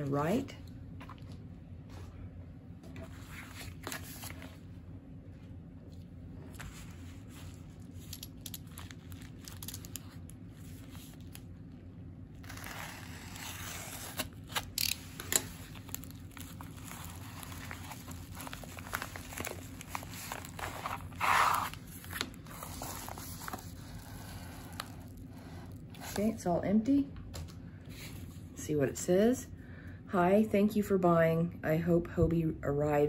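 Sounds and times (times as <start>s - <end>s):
bubble mailer crinkling: 6.7s - 11.6s, 12.4s - 25.3s.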